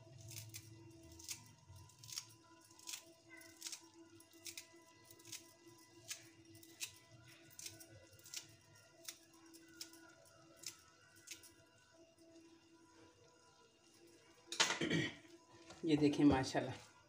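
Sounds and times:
knife snipping herb leaves: 0:01.2 - 0:03.8.

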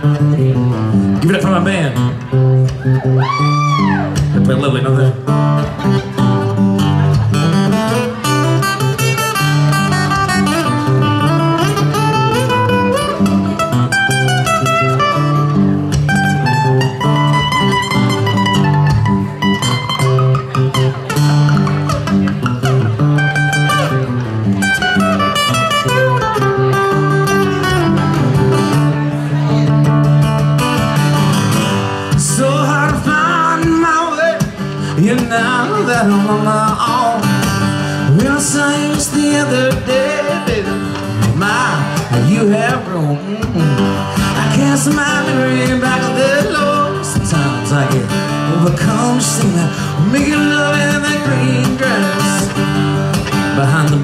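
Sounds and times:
acoustic guitar playing: 0:00.0 - 0:54.0
man singing: 0:32.0 - 0:54.0.

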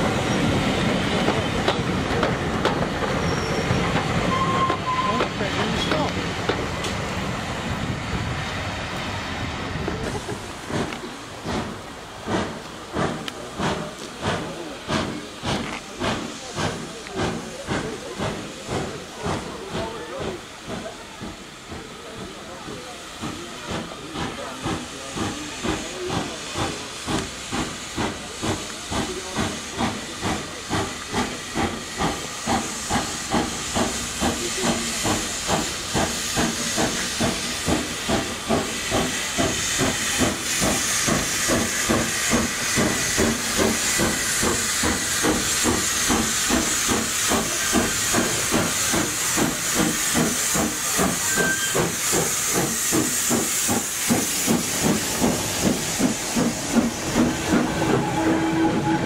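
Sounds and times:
steam hissing: 0:00.0 - 0:59.0
steam locomotive exhaust beats: 0:00.0 - 0:59.0.

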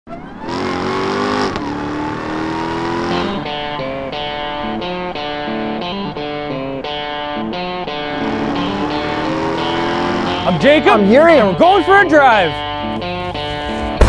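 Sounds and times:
engine accelerating hard: 0:00.1 - 0:10.8
electric guitar music: 0:00.2 - 0:14.0.

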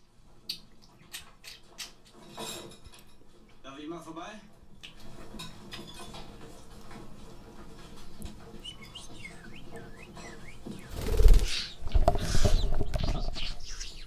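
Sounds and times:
budgerigar chirping: 0:08.6 - 0:14.0.

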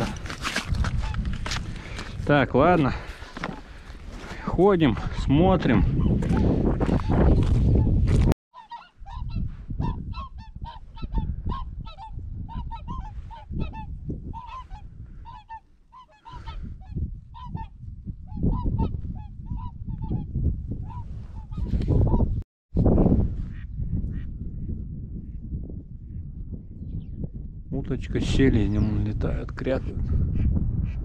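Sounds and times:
waterfowl honking: 0:08.6 - 0:16.6.

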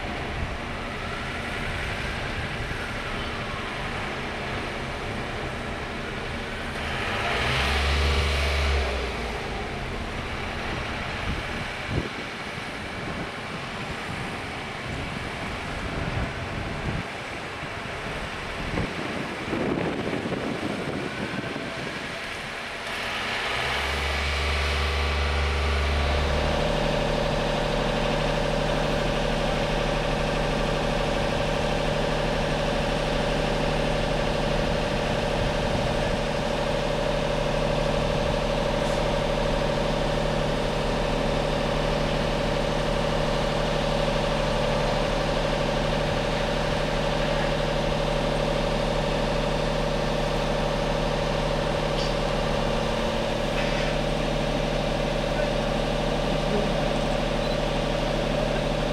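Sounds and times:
diesel engine idling: 0:00.0 - 0:58.9
wind on microphone: 0:10.8 - 0:22.6, 0:34.9 - 0:36.2.

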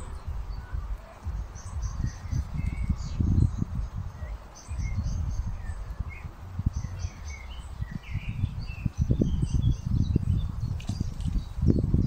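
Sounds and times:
small birds chirping: 0:00.0 - 0:12.0
wind buffeting the microphone: 0:00.0 - 0:12.0.

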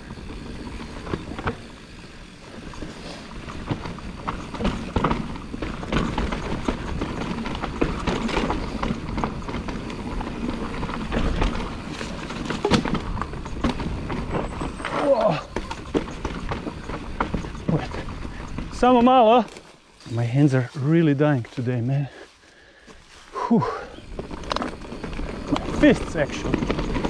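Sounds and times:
mountain bike rattling: 0:00.0 - 0:27.0
tyres hitting roots and rocks: 0:03.3 - 0:19.8, 0:24.0 - 0:27.0.

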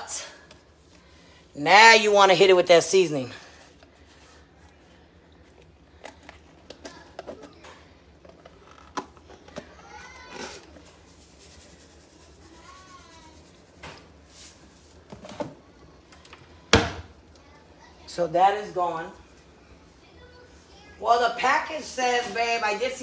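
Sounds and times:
spice container shaken: 0:10.9 - 0:13.7.

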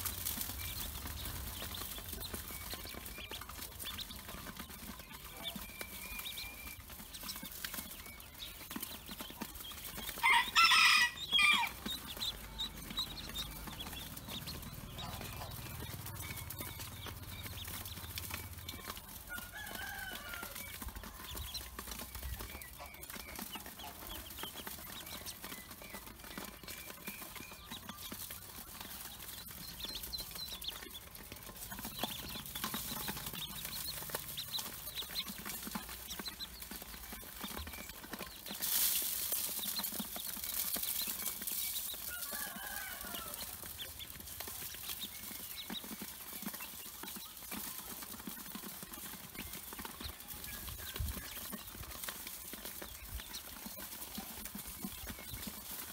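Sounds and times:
ducklings peeping: 0:00.0 - 0:55.9
bills clicking on metal bowl: 0:09.6 - 0:17.0
chicken calling: 0:10.0 - 0:17.6.

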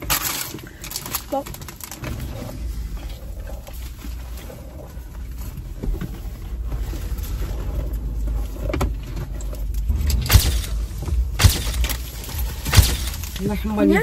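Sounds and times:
low rumble inside car cabin: 0:00.0 - 0:14.0.

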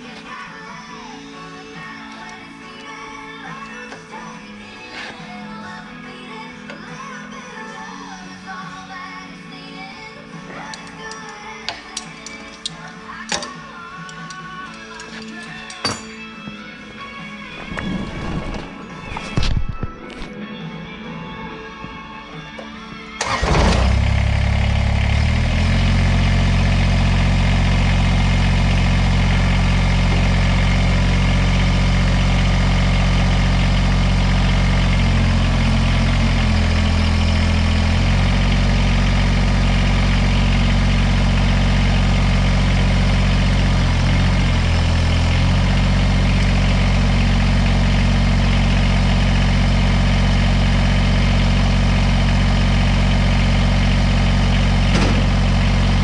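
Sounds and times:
tractor diesel engine idling: 0:22.4 - 0:56.0.

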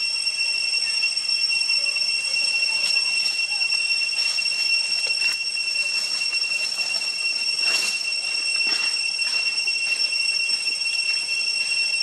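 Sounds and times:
cicadas whining: 0:00.0 - 0:12.0
dry leaves rustling: 0:02.4 - 0:12.0.

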